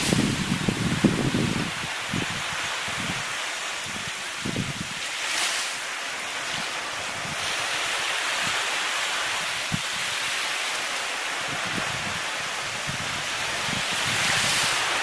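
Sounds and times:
wind buffeting microphone: 0:00.0 - 0:05.0, 0:11.4 - 0:15.0
sea surf on rocky shore: 0:00.0 - 0:15.0.

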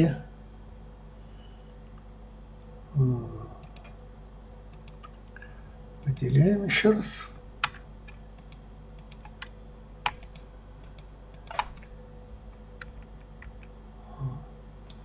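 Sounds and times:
computer keyboard key clicks: 0:03.6 - 0:03.9, 0:04.7 - 0:05.1, 0:07.6 - 0:11.9.

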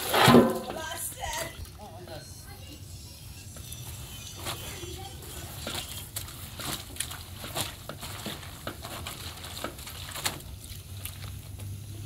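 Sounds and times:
water sloshing in a basin: 0:05.1 - 0:12.0.

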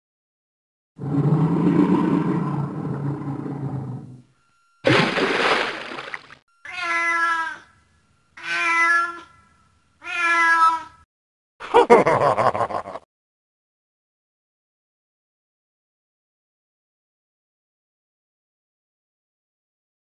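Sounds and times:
cat meowing: 0:06.7 - 0:07.7, 0:08.4 - 0:09.4, 0:10.0 - 0:11.0.

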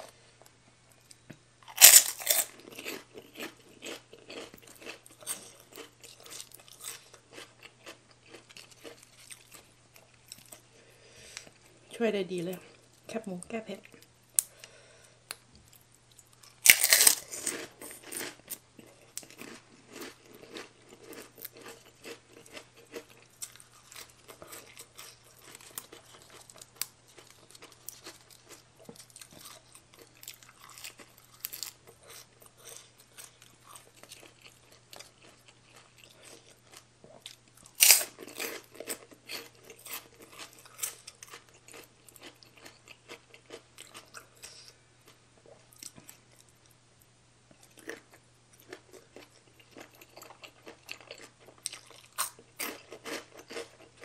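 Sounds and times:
crunching bites: 0:01.6 - 0:09.6, 0:16.4 - 0:18.4, 0:37.6 - 0:44.1.

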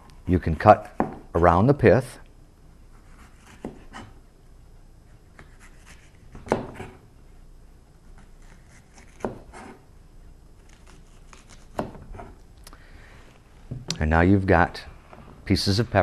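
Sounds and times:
knife slicing pepper: 0:08.2 - 0:09.8, 0:10.7 - 0:12.4.

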